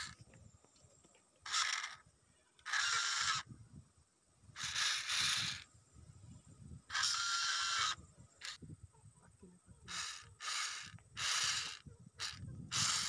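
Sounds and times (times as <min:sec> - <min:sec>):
toy motor whirring: 0:00.0 - 0:00.2, 0:01.4 - 0:03.5, 0:04.5 - 0:05.7, 0:06.9 - 0:08.6, 0:09.9 - 0:13.0.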